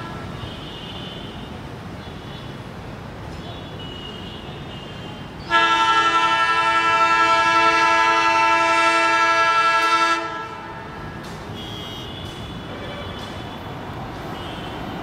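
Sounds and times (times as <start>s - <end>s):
locomotive horn blast: 5.5s - 13.6s.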